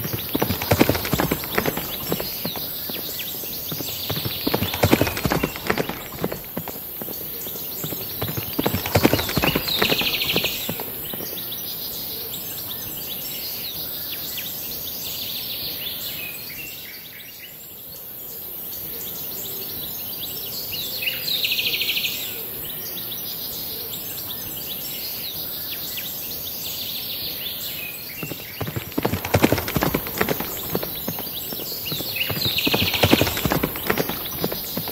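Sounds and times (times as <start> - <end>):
toy horse clip-clop hooves: 0.0 - 11.5, 28.2 - 34.9
steady outdoor hiss: 0.0 - 13.6, 28.0 - 34.9.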